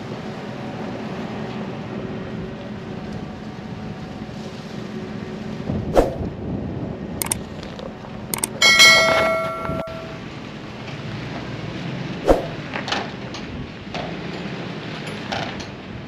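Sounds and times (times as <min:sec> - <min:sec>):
clicks: 0:08.3 - 0:10.2.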